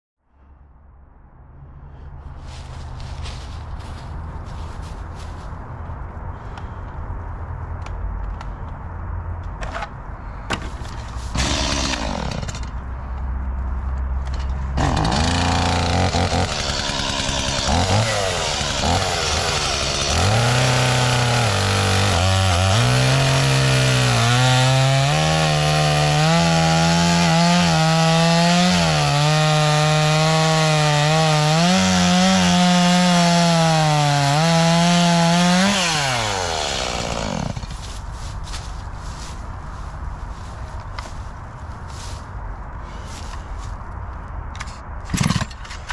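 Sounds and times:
chainsaw cutting log: 11.3 - 12.8, 14.7 - 37.9, 45.1 - 45.5.

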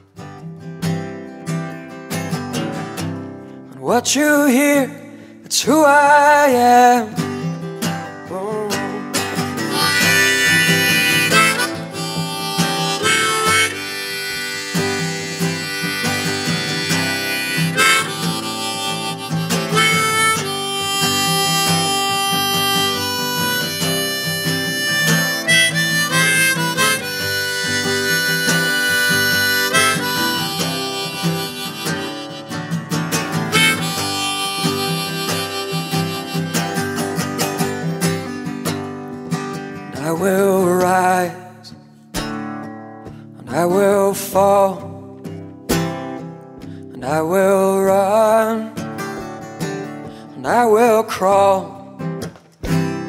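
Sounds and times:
strummed acoustic guitar: 0.0 - 53.0
harmonica solo with bending notes: 9.6 - 38.3.

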